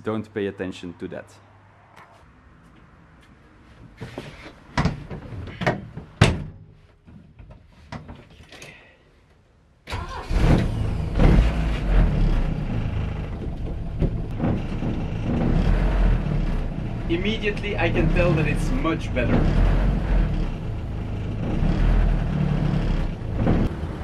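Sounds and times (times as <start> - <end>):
car engine starting and running: 9.9 - 24.0
knocks and clicks inside car: 13.1 - 16.4, 19.1 - 20.6, 21.2 - 23.7.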